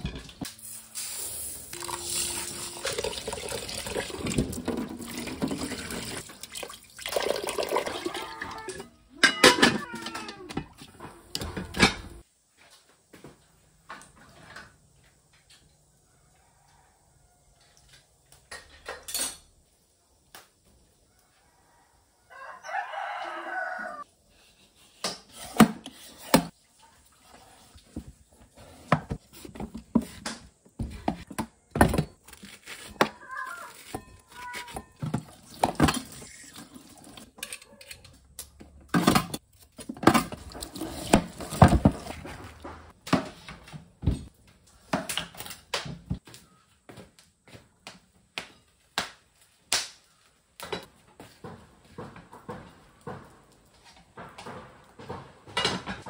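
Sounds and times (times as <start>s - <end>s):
metal bowl knocking and clatter: 8.7s - 10.6s
rooster crowing: 16.0s - 17.9s, 21.1s - 24.1s.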